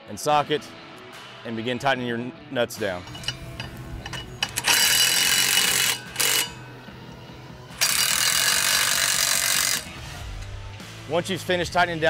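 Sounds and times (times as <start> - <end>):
cordless drill spinning: 4.0 - 6.7, 7.8 - 10.0.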